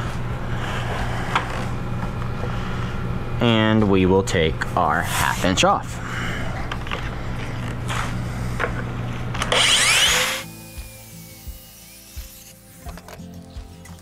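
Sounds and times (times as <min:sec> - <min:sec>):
track saw cutting plywood: 0:09.4 - 0:13.0.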